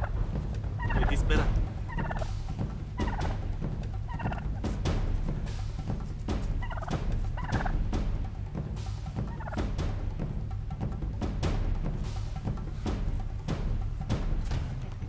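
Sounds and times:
turkey gobbling: 0:00.0 - 0:11.0.

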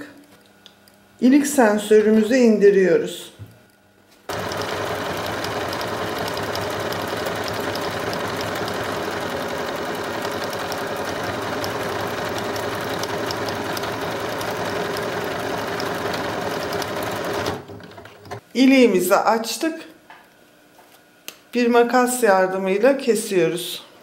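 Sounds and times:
sewing machine running: 0:04.3 - 0:18.4.

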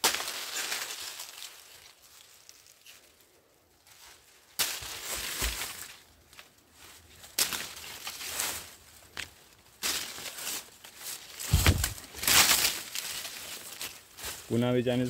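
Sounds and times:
leaves rustling: 0:00.0 - 0:15.0
plant stalk crunching and tearing: 0:09.8 - 0:14.0.

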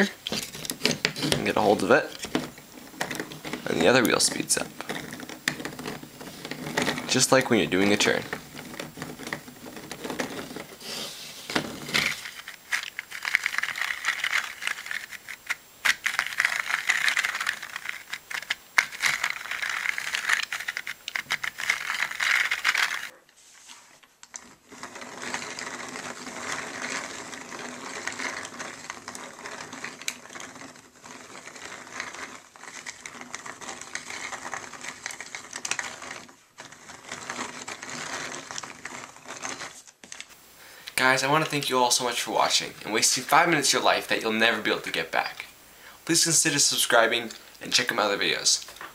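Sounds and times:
plastic gears clicking and rattling: 0:00.2 - 0:10.8, 0:11.5 - 0:23.1, 0:24.2 - 0:40.3.

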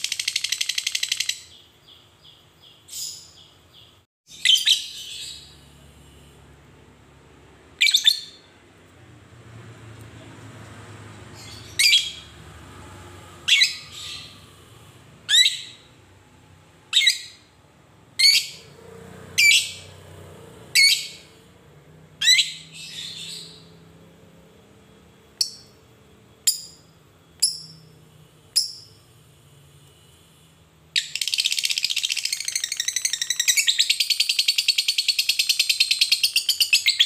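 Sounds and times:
lovebird shrill calls: 0:13.5 - 0:14.4.

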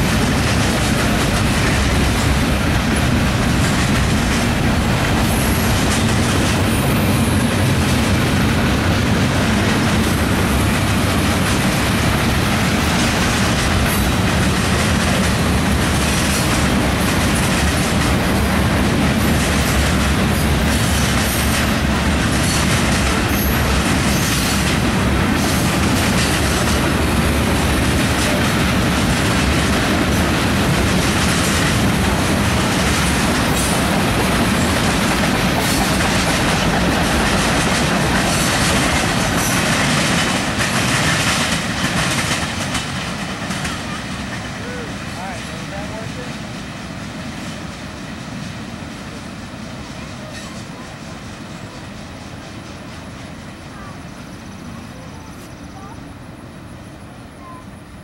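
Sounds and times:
wheels clicking over rail joints: 0:00.0 - 0:44.6
freight cars rolling: 0:00.0 - 0:46.3.

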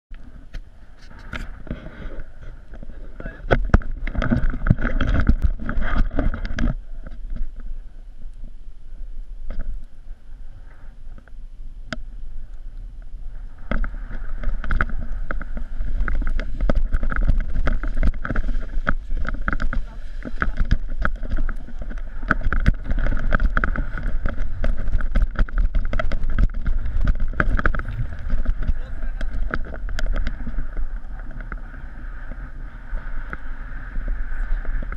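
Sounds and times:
wind buffeting microphone: 0:08.8 - 0:34.9.

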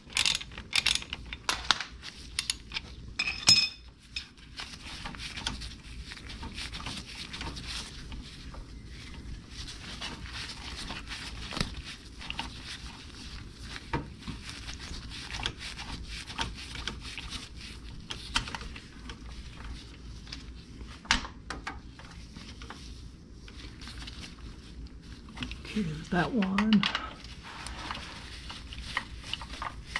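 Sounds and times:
low steady hum: 0:00.0 - 0:29.9
gloves rustling: 0:03.9 - 0:21.0, 0:21.8 - 0:29.9.

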